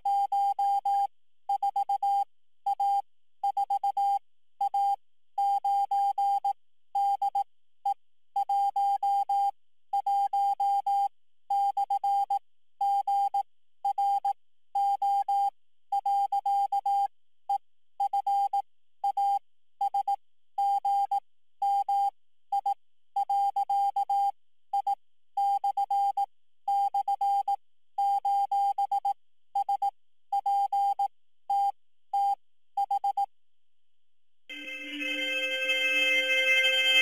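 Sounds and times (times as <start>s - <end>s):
electronic beep pulses: 34.5s - 37.0s.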